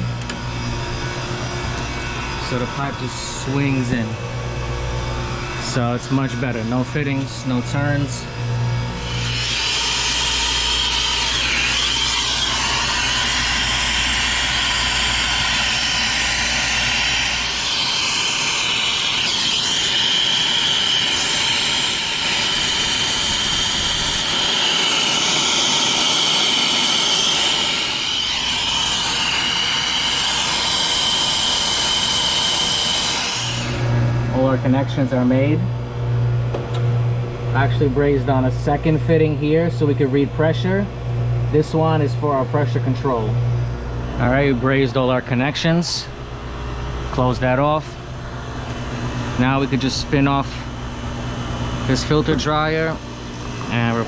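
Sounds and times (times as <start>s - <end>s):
brazing torch hissing: 8.9s - 33.9s.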